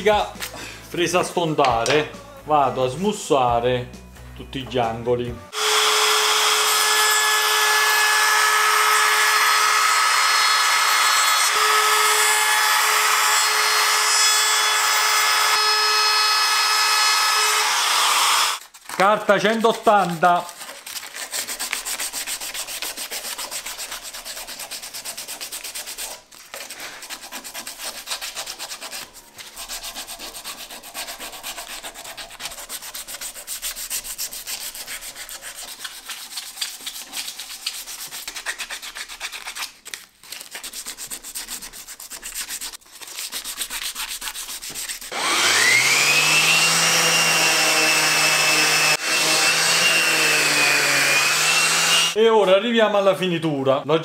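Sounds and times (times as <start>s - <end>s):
orbital sander whining: 5.5s - 18.6s, 45.1s - 52.2s
hand sanding wood: 19.4s - 52.2s.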